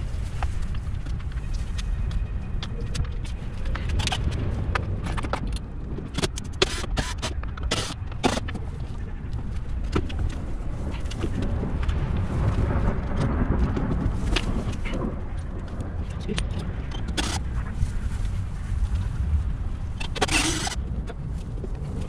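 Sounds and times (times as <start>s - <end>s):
steady low rumble: 0.0s - 22.0s.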